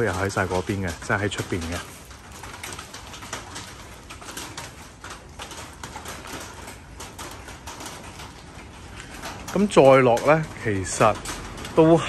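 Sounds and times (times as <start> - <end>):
light rain pattering and dripping: 0.0 - 12.0.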